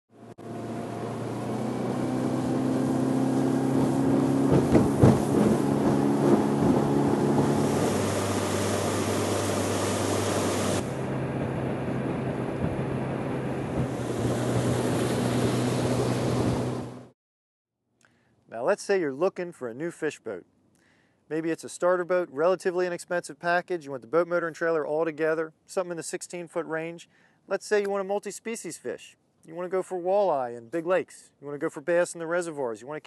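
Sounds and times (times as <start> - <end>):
outboard motor drone: 0.1 - 17.2
water and wind rushing: 0.4 - 17.1
sharp thumps: 3.8 - 8.0, 12.1 - 13.0, 13.6 - 15.2.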